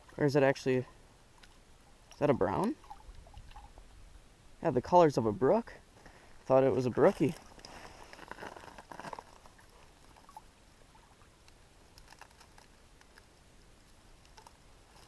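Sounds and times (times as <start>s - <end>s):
faint rustling: 6.0s - 15.0s
small ticks: 11.4s - 15.0s.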